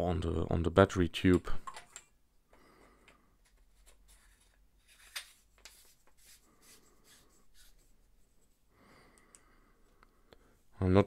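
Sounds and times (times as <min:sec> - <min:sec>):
handling rubs: 0:03.6 - 0:08.6.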